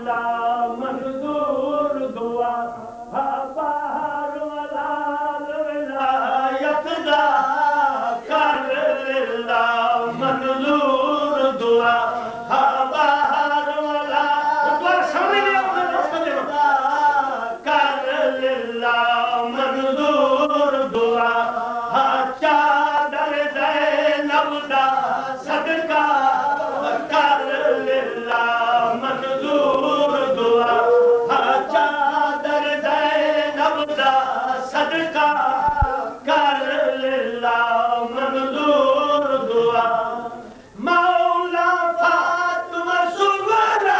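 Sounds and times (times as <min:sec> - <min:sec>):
man chanting through a microphone: 0:00.0 - 0:43.9.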